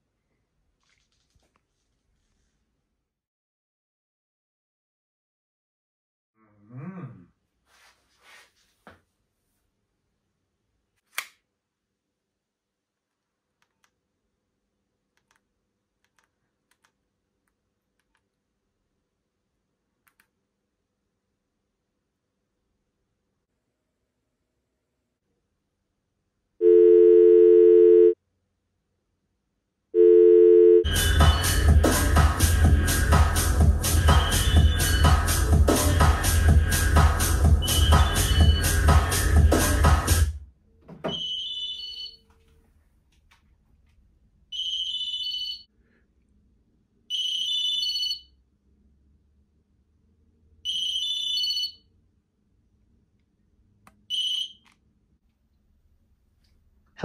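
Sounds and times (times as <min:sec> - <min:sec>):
mobile phone ringtone: 0:26.6 - 0:28.2, 0:30.0 - 0:30.9, 0:41.2 - 0:42.2, 0:44.6 - 0:45.6, 0:47.1 - 0:48.3, 0:50.7 - 0:51.8
telephone ringback tone: 0:26.6 - 0:28.2, 0:30.0 - 0:30.9
electronic dance music: 0:30.9 - 0:40.3.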